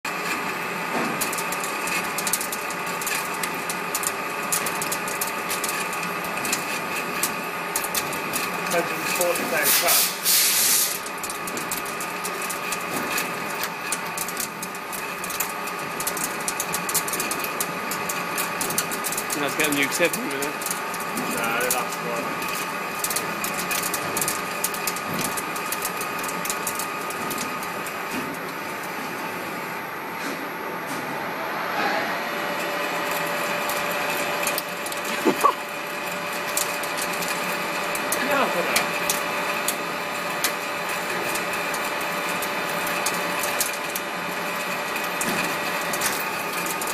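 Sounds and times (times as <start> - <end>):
loud hiss: 9.6 - 10.9
metal lathe whine: 24.4 - 46.9
rising machine whine: 30.6 - 35.9.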